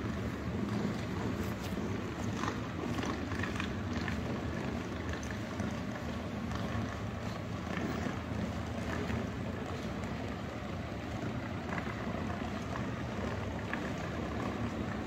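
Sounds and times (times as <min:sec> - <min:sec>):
city ambience rumble: 0:00.0 - 0:15.0.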